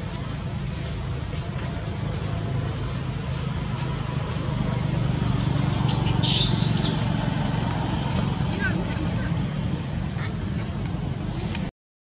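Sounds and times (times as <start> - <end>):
low engine hum: 0.0 - 11.7.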